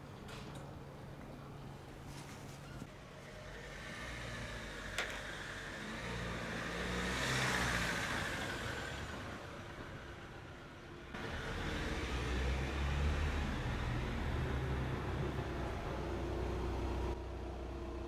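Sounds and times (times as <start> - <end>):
vehicle passing by: 3.3 - 10.1, 11.2 - 17.2.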